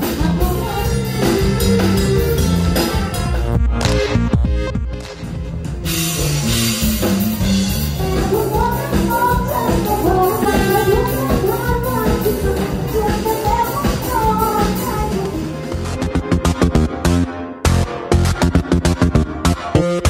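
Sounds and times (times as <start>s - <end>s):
woman singing into microphone: 0.0s - 1.9s, 8.0s - 15.6s
live band with drums: 0.0s - 19.7s.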